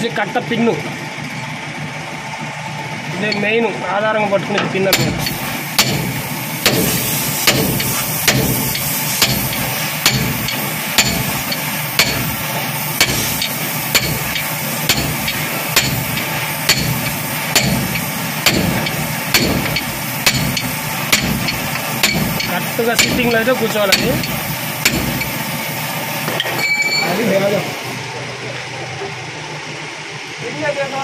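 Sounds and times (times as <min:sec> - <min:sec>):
hammer striking metal: 0:04.9 - 0:12.4, 0:13.0 - 0:25.4.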